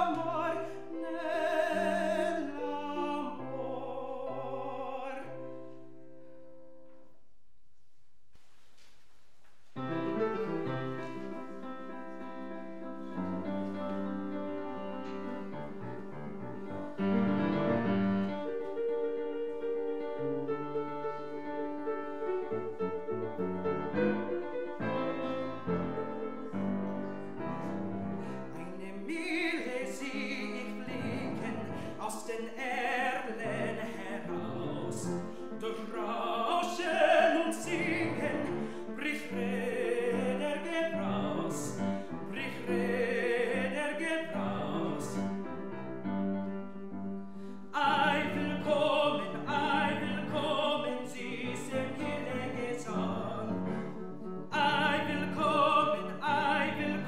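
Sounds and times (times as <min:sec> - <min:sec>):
man singing operatically: 0:00.0 - 0:05.6, 0:28.5 - 0:45.3, 0:47.7 - 0:57.0
grand piano: 0:00.0 - 0:57.0.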